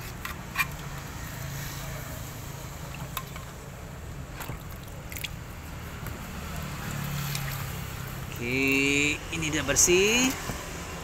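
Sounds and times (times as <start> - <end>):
water sloshing: 2.8 - 5.4, 6.4 - 8.9.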